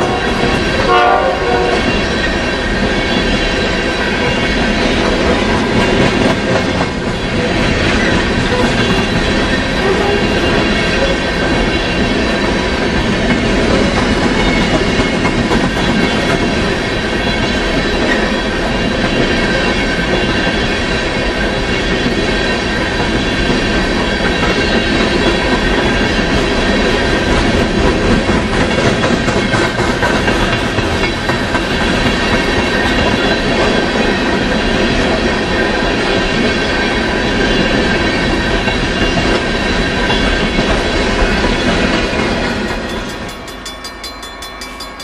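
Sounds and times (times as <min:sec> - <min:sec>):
train wheels rumbling on rail: 0:00.0 - 0:45.0
high ringing wheel tones: 0:42.4 - 0:45.0.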